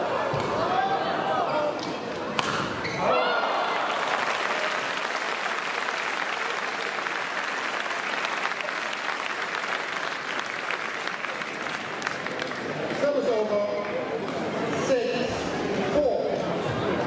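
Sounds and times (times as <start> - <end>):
crowd applauding: 3.2 - 13.0.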